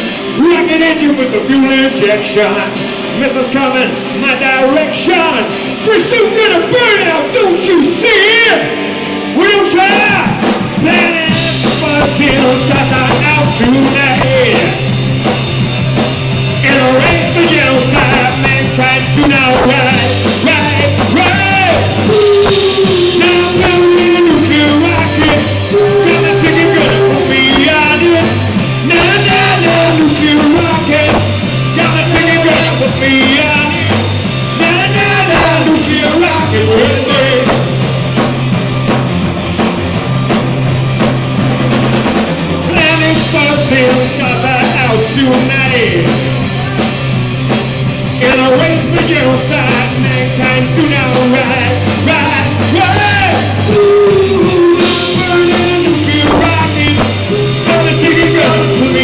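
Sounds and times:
bass guitar: 0.0 - 59.0
drum kit: 0.0 - 59.0
electric guitars: 0.0 - 59.0
person singing: 10.8 - 14.8, 16.6 - 37.8, 42.7 - 47.0, 48.1 - 59.0.

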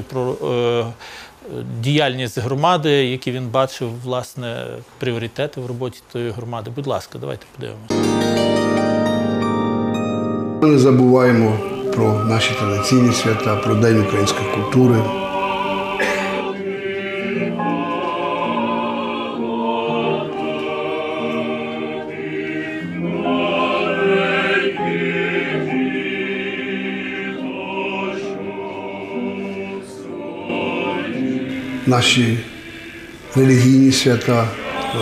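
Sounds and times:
choir singing slowly: 10.6 - 35.0.

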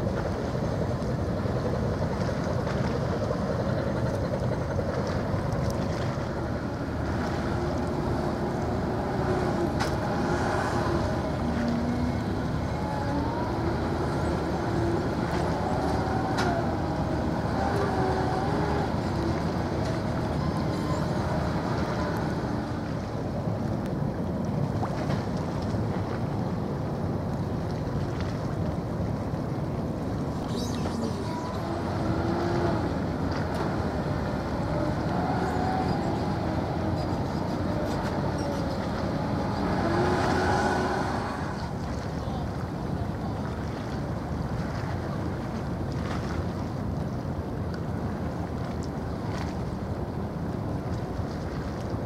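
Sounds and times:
low engine rumble: 0.0 - 52.0
faint whine: 30.2 - 43.5
faint wavering drone: 30.3 - 42.4.

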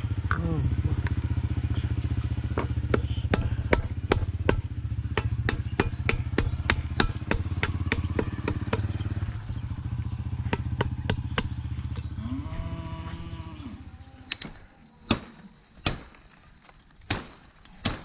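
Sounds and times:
low mechanical drone: 0.0 - 18.0
tool knocking on bamboo: 2.5 - 8.9, 10.4 - 12.1.

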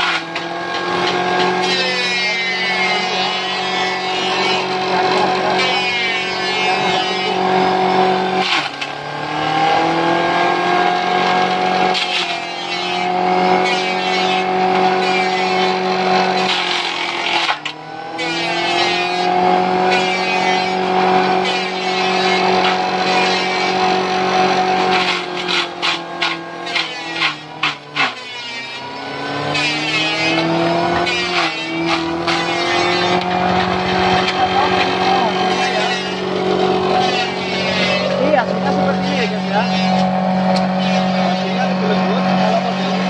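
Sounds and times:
blades cutting leafy branches: 0.0 - 43.0
electric motor humming whine: 0.0 - 43.0.

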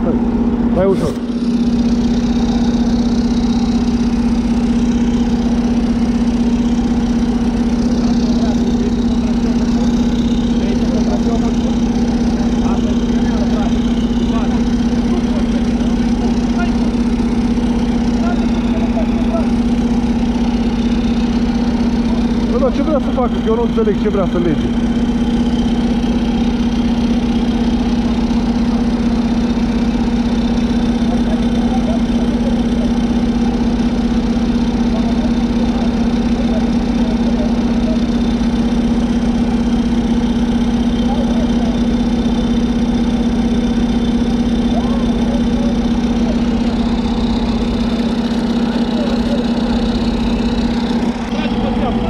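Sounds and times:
vehicle engine idling: 0.0 - 52.0.

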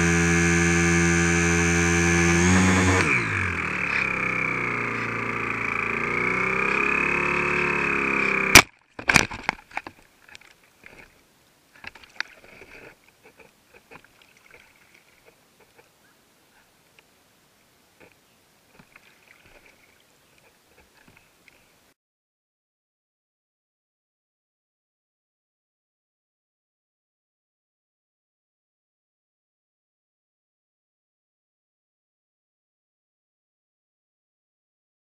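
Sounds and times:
model plane motor whining: 0.0 - 8.6
splashes in shallow water: 11.8 - 15.9, 18.8 - 21.6.

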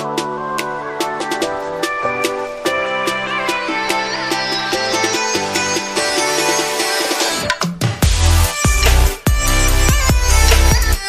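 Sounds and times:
electronic music: 0.0 - 11.0
deep bass and drum hits: 8.0 - 11.0.

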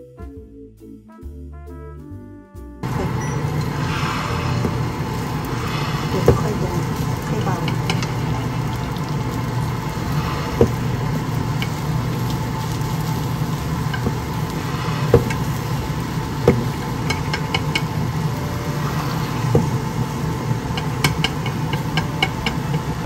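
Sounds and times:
low hum: 2.8 - 23.0
chopsticks stirring egg: 3.0 - 23.0
chopsticks tapping pan: 4.6 - 18.4, 19.4 - 23.0.

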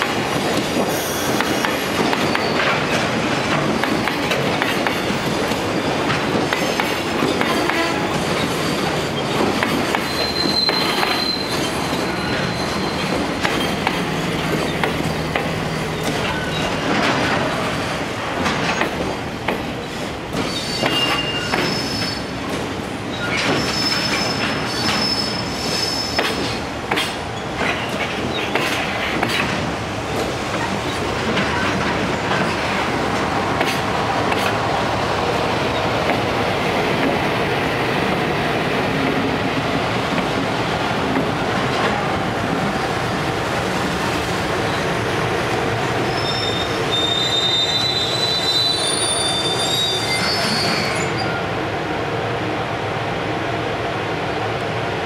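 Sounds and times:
train wheels rumbling: 0.0 - 51.6
wheel squeals: 0.9 - 2.8, 6.7 - 13.8, 20.4 - 22.3, 23.1 - 26.4, 46.1 - 51.4
clatter over rail joints: 13.0 - 19.7, 26.2 - 34.6.

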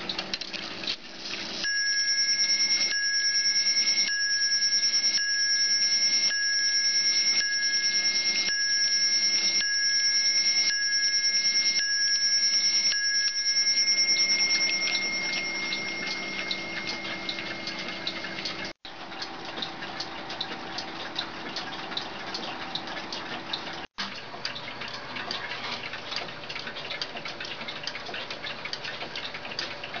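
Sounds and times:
clock striking metal bell: 1.6 - 18.7
clocks ticking: 1.6 - 25.4.

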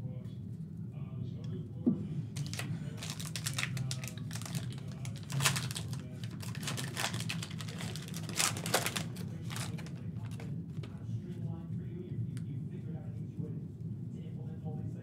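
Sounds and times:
card pack wrapper crackling: 2.4 - 10.5.

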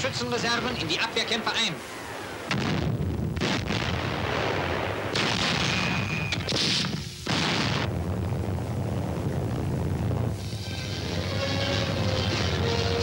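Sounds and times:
continuous low rumble: 0.0 - 13.0
shell explosions: 0.5 - 8.4
artillery fire: 1.2 - 8.4.

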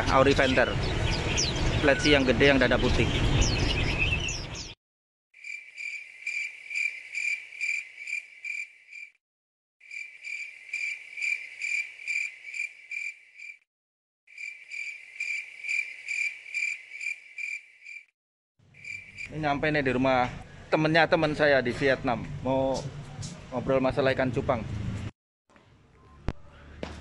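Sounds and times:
cricket chirping: 5.4 - 9.2, 9.8 - 13.6, 14.3 - 18.1, 18.8 - 19.3.

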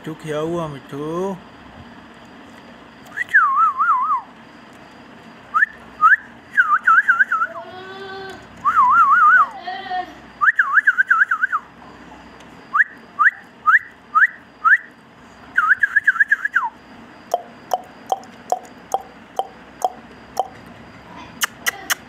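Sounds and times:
sharp clicks: 17.3 - 20.6.

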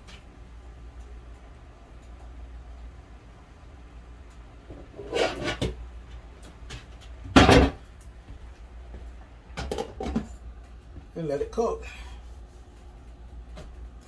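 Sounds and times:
cookware knocking and rattling: 9.6 - 10.3.

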